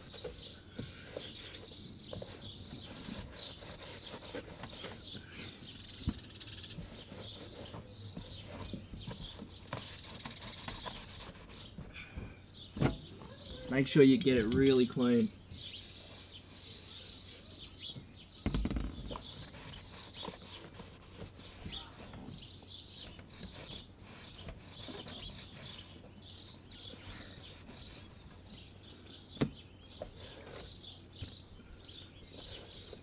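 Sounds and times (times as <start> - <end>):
small birds chirping: 0.0 - 33.0
dull thump: 11.8 - 13.2, 29.4 - 29.6.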